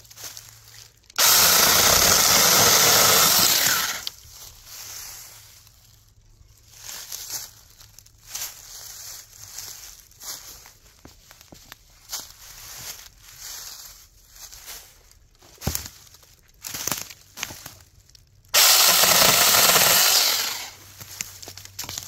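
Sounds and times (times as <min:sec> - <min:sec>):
rustling in dry leaves: 0:00.0 - 0:22.0
mini chainsaw running: 0:01.2 - 0:04.1, 0:18.6 - 0:20.8.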